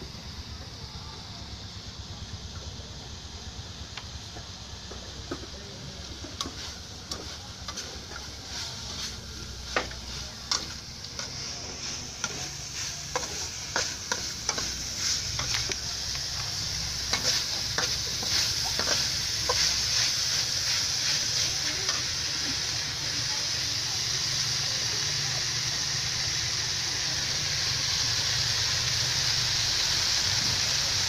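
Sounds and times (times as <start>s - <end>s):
food sizzling in a wok: 0.0s - 31.0s
metal spatula scraping a wok: 6.4s - 22.2s.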